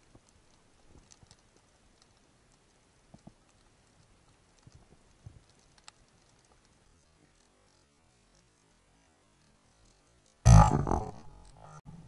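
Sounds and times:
faint underwater clicks: 0:00.0 - 0:08.6.

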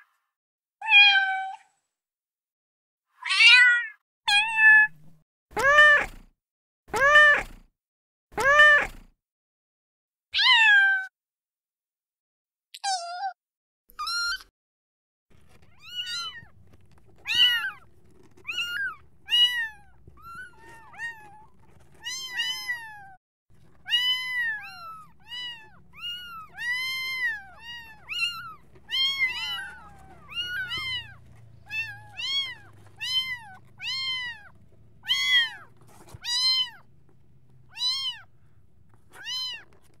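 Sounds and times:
kitten mewing: 0:06.9 - 0:07.6, 0:08.4 - 0:09.1, 0:23.8 - 0:36.9, 0:37.7 - 0:38.3.

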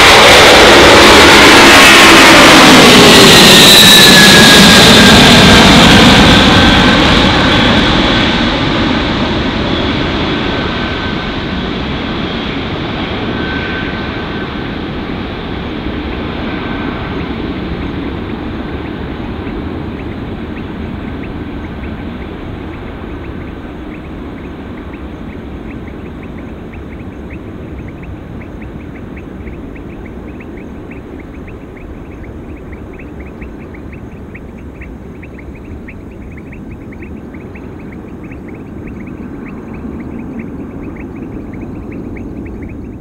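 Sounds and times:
distant jet aircraft rumble: 0:00.0 - 0:43.0
high repeated chirping calls: 0:17.1 - 0:43.0.

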